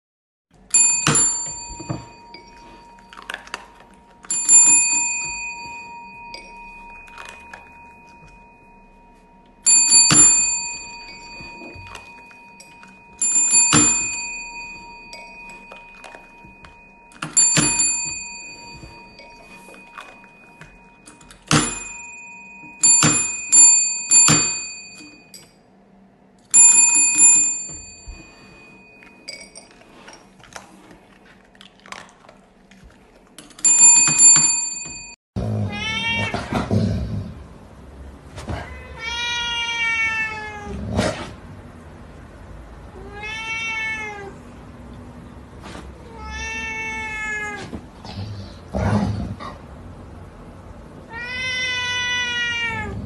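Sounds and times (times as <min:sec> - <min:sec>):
service bell ringing: 0:00.6 - 0:25.6, 0:26.5 - 0:30.1, 0:33.5 - 0:35.2.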